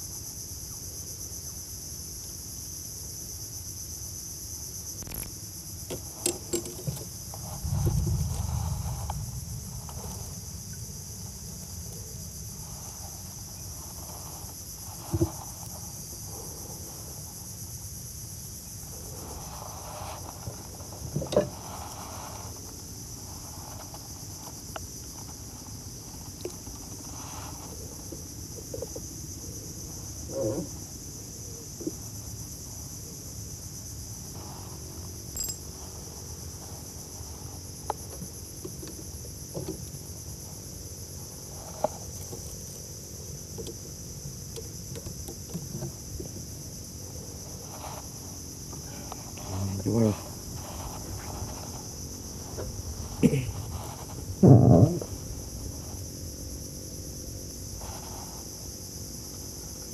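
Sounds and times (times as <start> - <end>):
insect chorus shrilling: 0.1 - 59.9
knocks and clicks in wooden boat: 5.9 - 7.2, 21.1 - 21.6, 37.9 - 39.9, 44.5 - 46.5.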